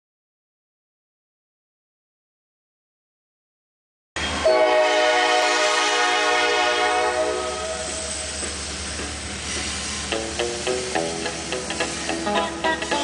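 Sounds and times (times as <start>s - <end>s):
steady train rumble: 4.2s - 13.0s
train air horn chord: 4.4s - 8.1s.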